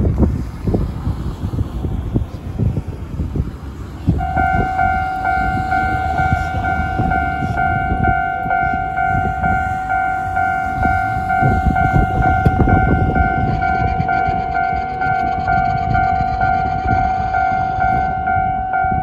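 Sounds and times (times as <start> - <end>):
low traffic rumble: 0.0 - 19.0
level crossing alarm dinging: 4.2 - 19.0.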